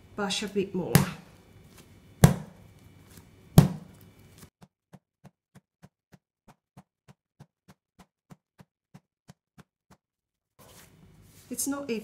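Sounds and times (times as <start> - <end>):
dough slammed on stone: 0.9 - 1.2, 2.2 - 2.6, 3.6 - 3.9.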